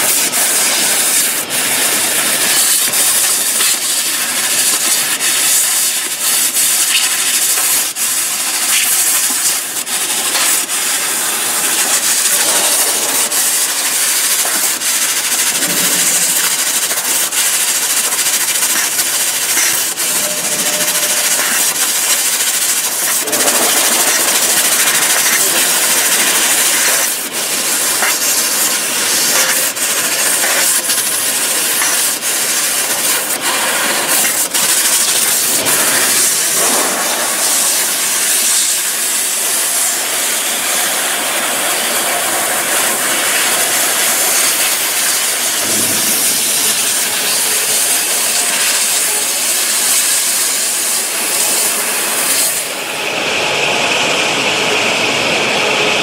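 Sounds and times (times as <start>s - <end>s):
laser cutter nozzle hissing: 0.0s - 53.0s
high steady tone: 12.3s - 26.5s.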